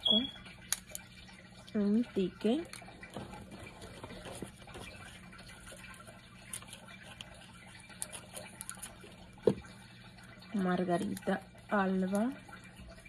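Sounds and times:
low steady hum: 0.0 - 13.0
paper rustling: 3.0 - 8.9.

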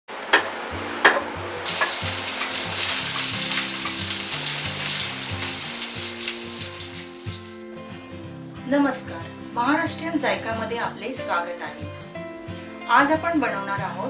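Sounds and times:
sizzling: 1.6 - 7.8.

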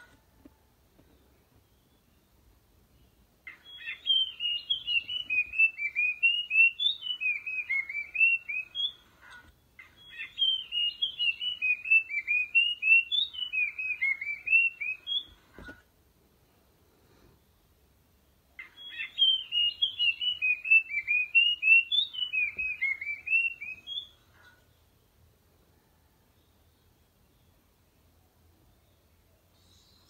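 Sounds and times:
bird whistled song: 3.5 - 9.0, 9.8 - 15.4, 18.6 - 24.5.

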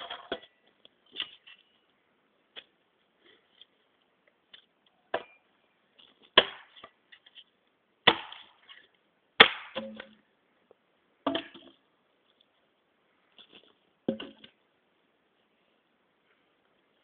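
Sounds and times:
machete chopping into tree: 6.4 - 6.8, 8.1 - 8.5, 9.4 - 10.0.

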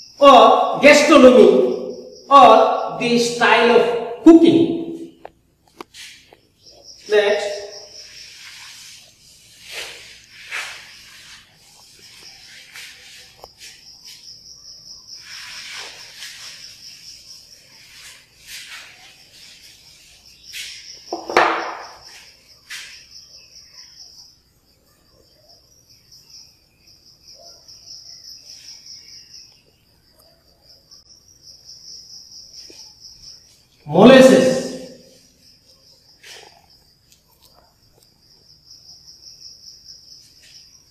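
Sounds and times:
insects chirring: 0.0 - 40.9
duster wiping chalkboard: 5.9 - 6.3, 7.9 - 14.3, 15.2 - 21.4
knock: 21.1 - 22.0.

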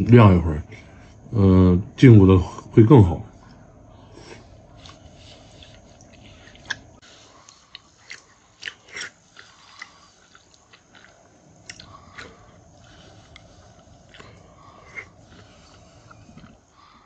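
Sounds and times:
wet chewing and slurping: 4.2 - 17.0.

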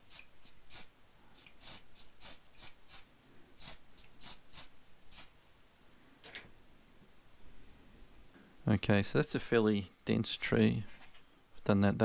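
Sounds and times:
hairspray can hissing spurts: 0.1 - 5.3.

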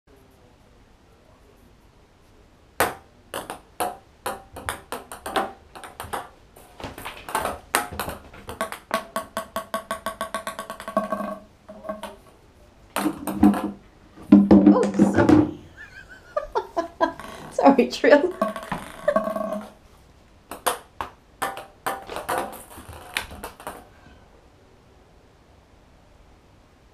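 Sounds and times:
ping pong ball bouncing in bathtub: 2.8 - 12.2, 13.0 - 15.7, 18.2 - 19.8, 20.5 - 23.9.

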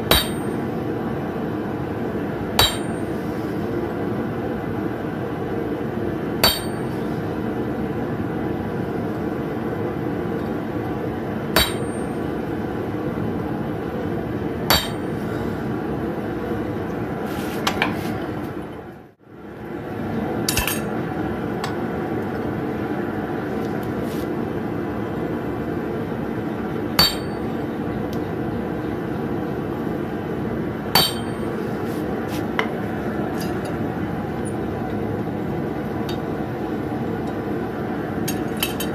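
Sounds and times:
hammer striking anvil: 0.1 - 0.6, 2.6 - 3.2, 6.4 - 7.0, 11.6 - 12.2, 14.7 - 15.2, 27.0 - 27.5, 31.0 - 31.5.

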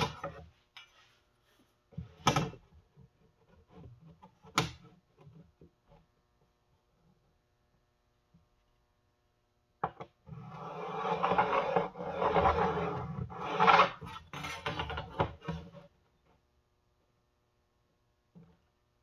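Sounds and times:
pencil and straightedge scraping wood: 10.2 - 16.0.

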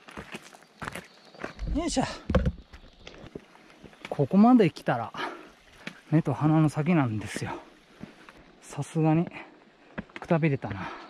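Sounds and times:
footsteps on rocky gravel: 0.0 - 4.3, 7.2 - 8.4, 9.9 - 11.0.

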